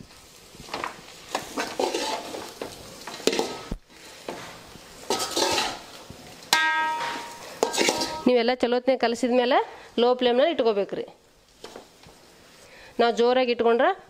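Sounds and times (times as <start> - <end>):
ladle scraping metal pan: 1.3 - 5.9, 6.5 - 8.3
metal ringing: 6.5 - 8.3.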